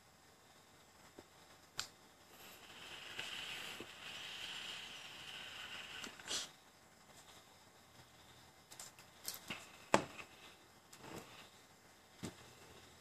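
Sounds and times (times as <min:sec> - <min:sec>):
e-cigarette airy hiss: 0:01.8 - 0:06.6.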